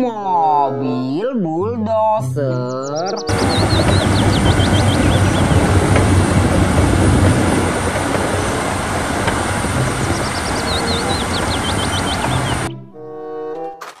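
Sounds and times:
bulldozer diesel engine under load: 0:03.3 - 0:12.7.

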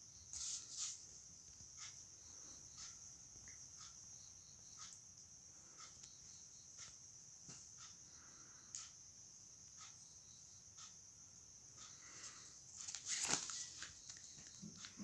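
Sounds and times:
faint ticks: 0:01.5 - 0:13.0
paper page turning: 0:12.8 - 0:14.1.

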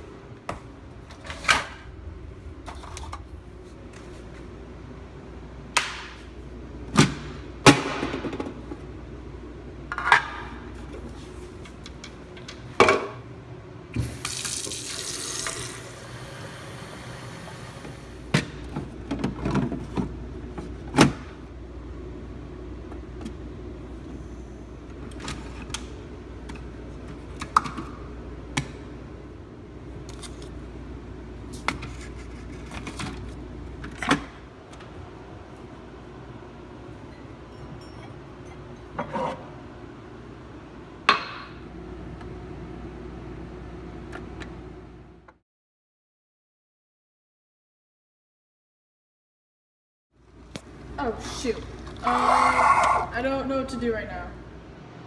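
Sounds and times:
faucet running water: 0:14.1 - 0:16.3.

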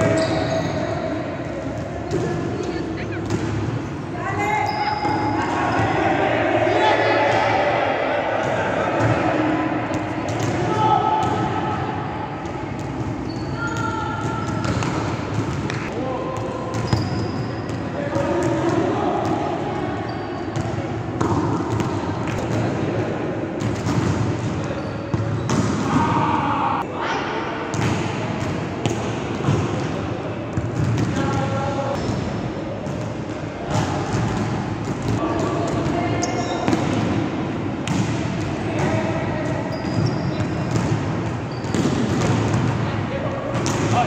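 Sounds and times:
players' voices: 0:00.0 - 0:44.0
ball bouncing in gym: 0:01.6 - 0:03.9, 0:12.4 - 0:19.4, 0:27.7 - 0:42.9
volleyball hits echoing: 0:07.2 - 0:19.8, 0:20.5 - 0:26.9, 0:27.6 - 0:44.0.

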